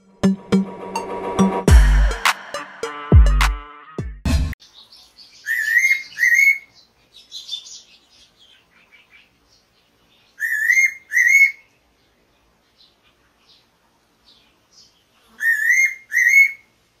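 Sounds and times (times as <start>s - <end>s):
faint bird chirps: 4.6s - 16.7s
bird whistled call: 5.4s - 6.7s.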